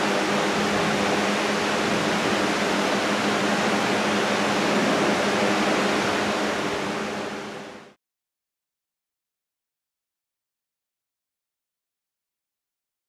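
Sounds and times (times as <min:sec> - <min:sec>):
electric fan blowing air: 0:00.0 - 0:08.0.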